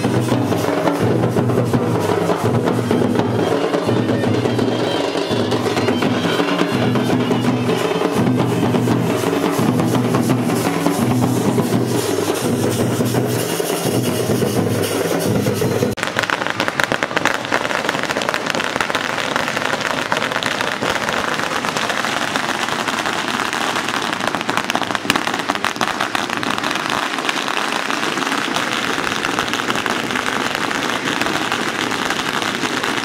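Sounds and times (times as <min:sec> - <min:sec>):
large drums playing fast rhythm: 0:00.0 - 0:33.0.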